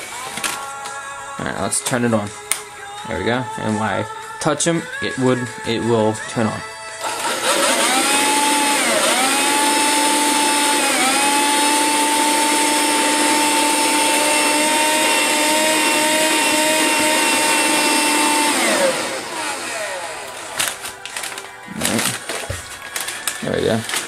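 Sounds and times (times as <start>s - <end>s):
vacuum motor high whine: 7.0s - 20.5s.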